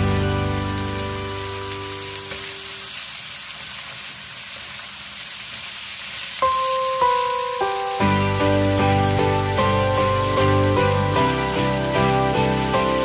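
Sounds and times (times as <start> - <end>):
background music: 0.0 - 2.2, 6.5 - 13.0
food sizzling in a frying pan: 0.0 - 13.0.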